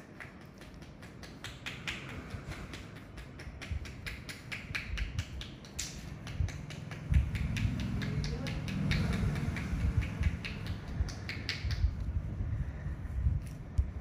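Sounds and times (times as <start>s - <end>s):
low room rumble: 0.0s - 14.0s
metal tool clicking on skin: 0.5s - 12.0s.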